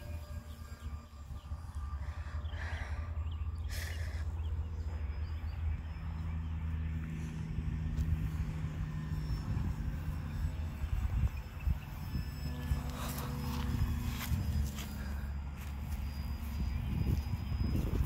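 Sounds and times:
model plane motor drone: 0:00.0 - 0:18.0
wind buffeting microphone: 0:07.4 - 0:18.0.

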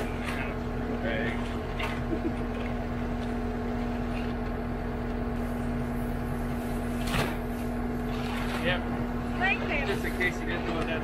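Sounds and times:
skid steer engine droning: 0:00.0 - 0:11.0.

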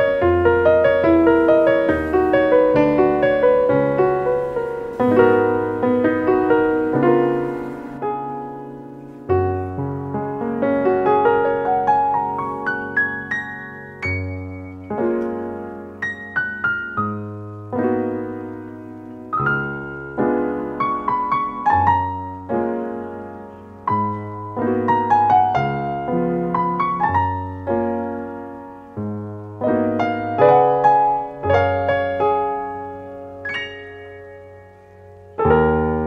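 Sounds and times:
solo piano music: 0:00.0 - 0:36.0.

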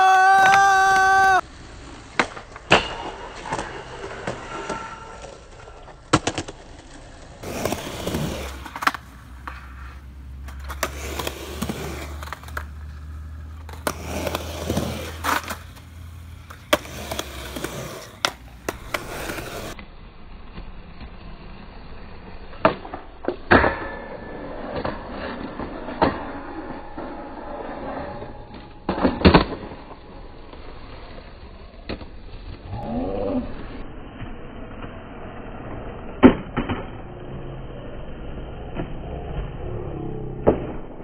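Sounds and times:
skateboard wheels rolling on concrete: 0:00.0 - 0:41.0
skateboard clacking on concrete: 0:02.1 - 0:19.8.

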